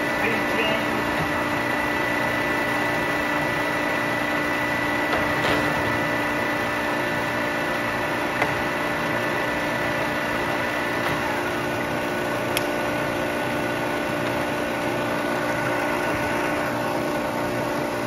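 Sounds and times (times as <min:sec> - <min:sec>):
lathe humming with high whine: 0:00.0 - 0:18.0.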